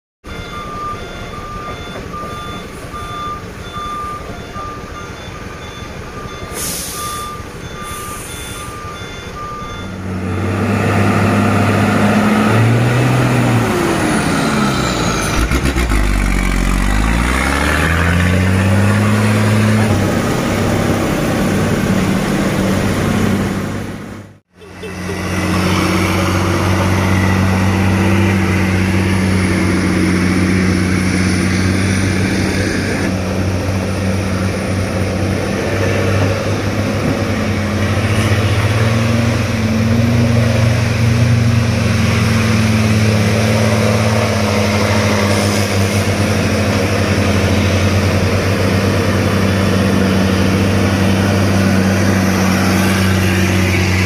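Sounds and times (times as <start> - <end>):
truck reversing beeper: 0.2 - 35.3, 36.4 - 54.0
truck diesel engines revving: 0.3 - 54.0
air brake hisses: 6.5 - 7.2, 7.8 - 8.9.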